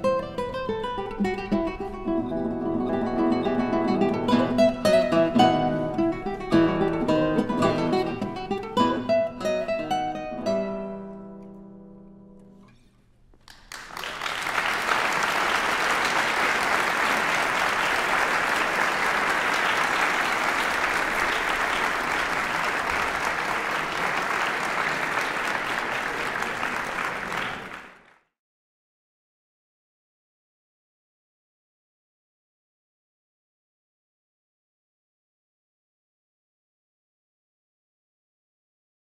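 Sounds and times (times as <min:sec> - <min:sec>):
classical guitars chord: 0:00.0 - 0:12.7
audience applauding: 0:13.4 - 0:28.3.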